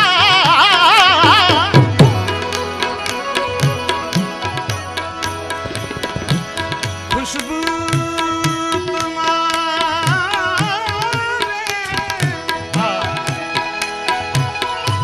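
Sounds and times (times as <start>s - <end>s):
man singing: 0.0s - 3.9s, 7.1s - 15.0s
harmonium: 0.0s - 15.0s
tabla rhythm: 0.0s - 15.0s.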